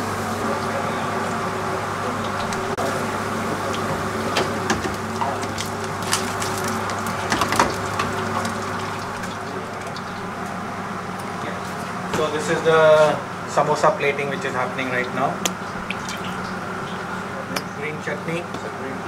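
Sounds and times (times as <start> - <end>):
oil sizzling in deep fryer: 0.0 - 12.1
steady low hum: 0.0 - 19.0.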